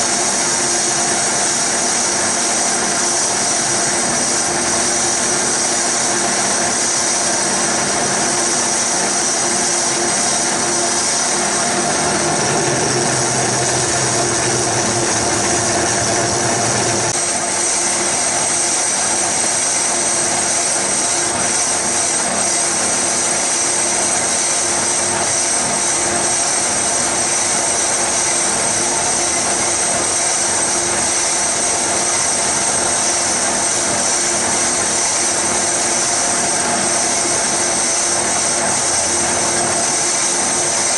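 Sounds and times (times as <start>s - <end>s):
lathe cutting metal: 0.0s - 40.9s
lathe motor whine: 0.0s - 40.9s
low hum: 11.6s - 17.2s.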